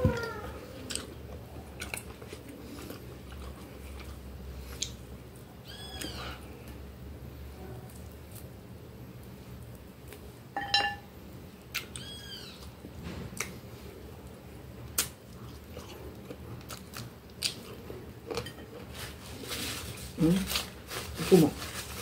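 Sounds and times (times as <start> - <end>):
chewing and nibbling: 0.8 - 6.8, 14.9 - 19.0.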